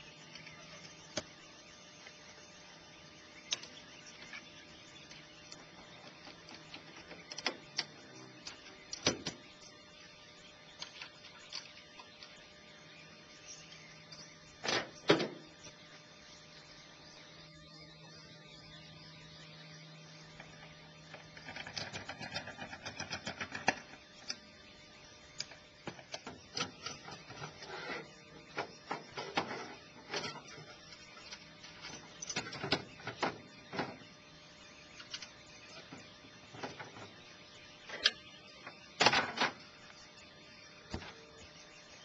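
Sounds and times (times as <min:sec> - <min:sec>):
doors and latches clicking and rattling: 0:31.3 - 0:34.0.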